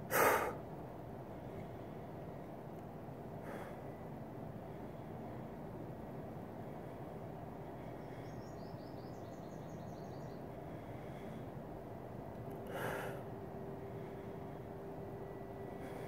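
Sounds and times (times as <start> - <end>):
steady background hiss: 0.0 - 16.0
bird chirping: 7.9 - 10.5.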